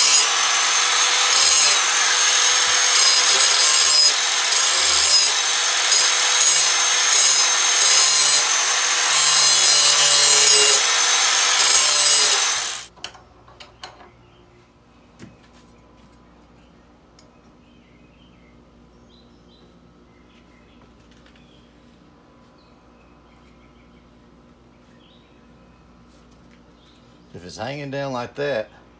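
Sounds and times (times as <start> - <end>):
angle grinder grinding steel: 0.0 - 12.9.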